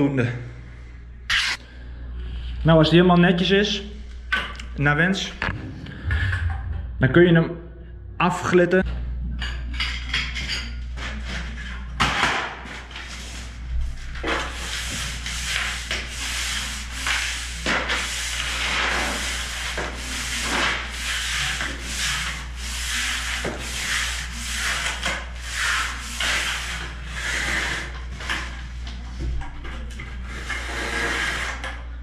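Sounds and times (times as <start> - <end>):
low steady hum: 0.0 - 12.0
steel trowel scraping mortar: 14.2 - 28.0, 30.3 - 31.7.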